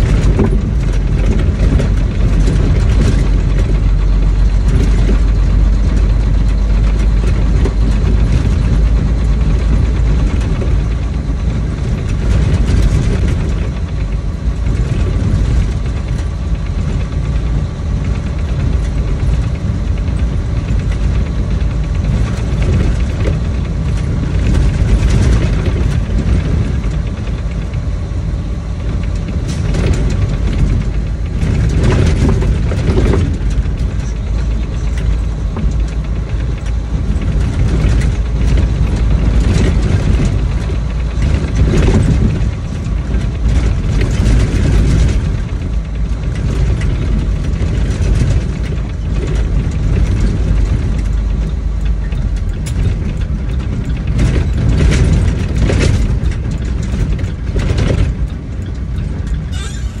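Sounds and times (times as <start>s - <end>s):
truck engine rumbling: 0.0s - 60.0s.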